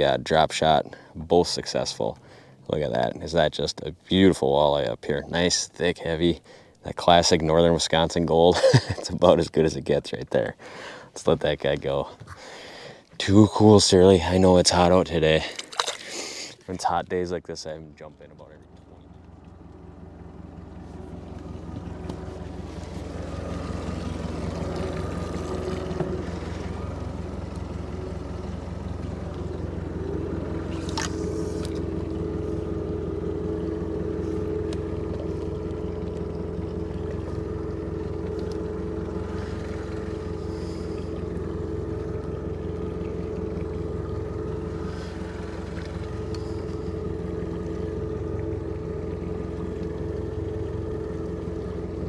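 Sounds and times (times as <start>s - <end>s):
boat motor running: 0.0s - 52.0s
two-note hum: 18.4s - 52.0s.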